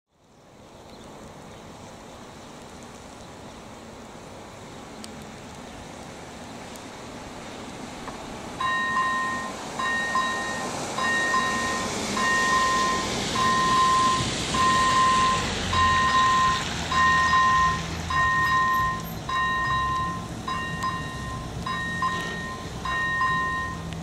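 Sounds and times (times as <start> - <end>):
rain on wet road: 0.2 - 24.0
level crossing bell two-tone ding: 17.0 - 23.8.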